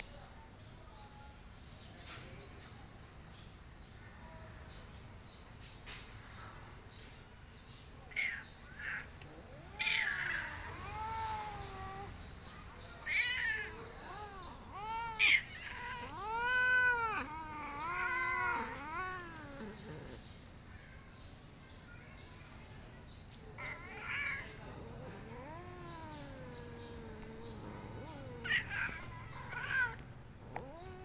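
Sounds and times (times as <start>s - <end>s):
cat meowing: 8.1s - 12.1s, 13.0s - 20.2s, 23.6s - 31.0s.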